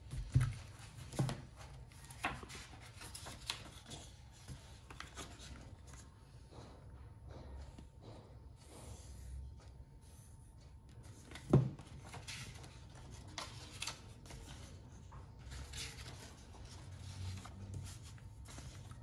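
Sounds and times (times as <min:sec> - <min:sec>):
paper pages rustling: 0:00.1 - 0:06.1, 0:11.1 - 0:19.0.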